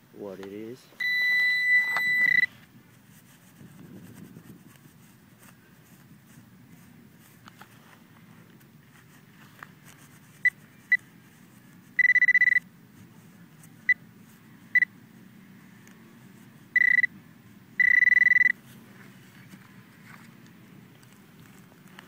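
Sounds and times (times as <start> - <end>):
metal detector pinpointer beeping: 1.0 - 2.5, 12.0 - 12.7, 16.8 - 17.1, 17.8 - 18.6.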